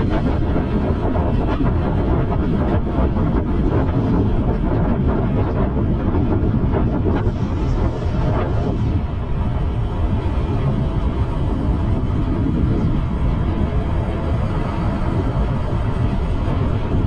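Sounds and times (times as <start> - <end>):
wind buffeting microphone: 0.0 - 17.0
traffic and road noise: 7.3 - 17.0.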